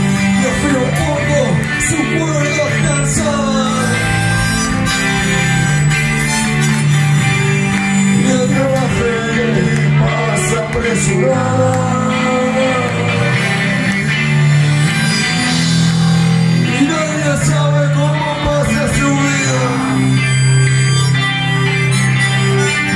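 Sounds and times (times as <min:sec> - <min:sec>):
electric guitars: 0:00.0 - 0:22.9
person singing: 0:00.3 - 0:05.0, 0:08.0 - 0:14.0.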